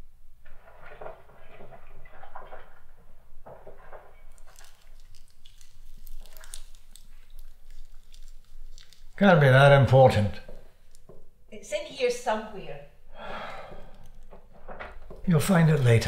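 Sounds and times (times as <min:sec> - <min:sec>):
rustling of belongings: 0:00.4 - 0:09.2, 0:10.1 - 0:11.3.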